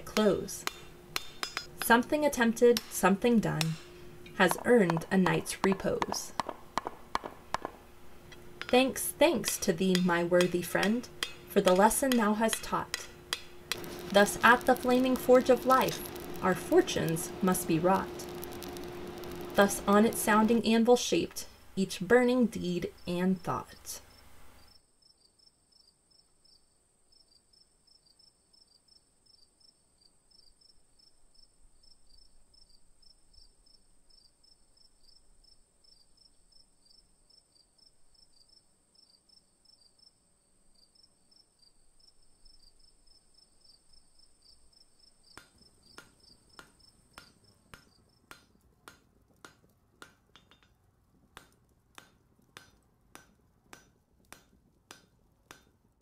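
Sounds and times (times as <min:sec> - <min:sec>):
hammer blows on anvil: 0:00.2 - 0:02.1, 0:02.8 - 0:07.8, 0:08.6 - 0:14.2
faint crickets chirping: 0:22.6 - 0:48.3.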